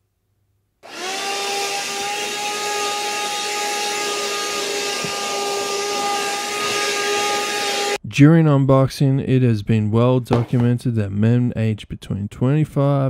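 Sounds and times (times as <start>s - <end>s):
vacuum cleaner motor whine: 0.8s - 8.0s.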